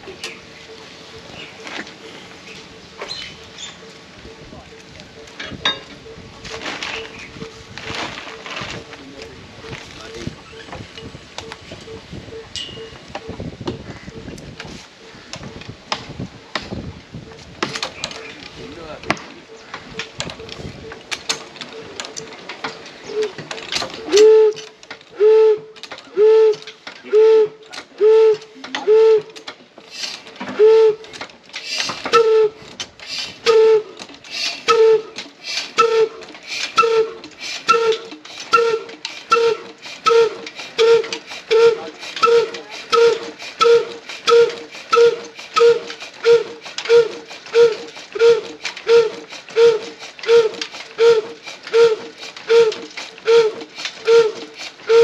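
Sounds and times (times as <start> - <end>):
diesel engine hooting exhaust beats: 0.4 - 15.6, 31.8 - 32.7, 33.3 - 55.0
engine turning over clicks and knocks: 15.3 - 55.0.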